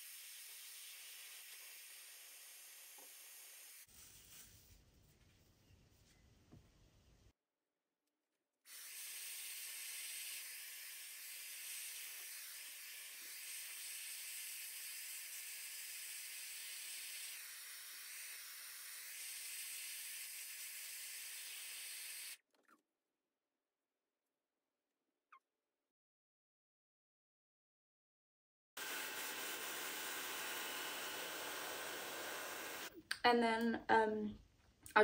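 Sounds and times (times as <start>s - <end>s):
hairdryer blowing air: 28.8s - 32.9s.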